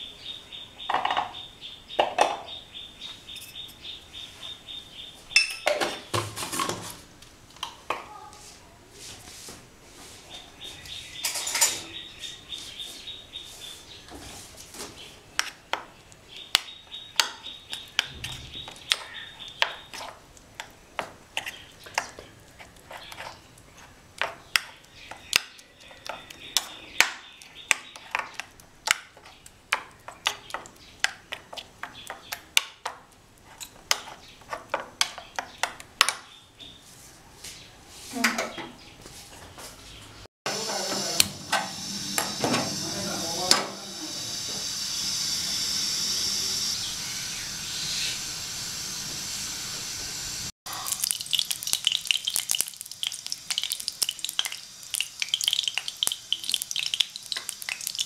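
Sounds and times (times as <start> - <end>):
metal spoon clinking in bowl: 5.4 - 5.8.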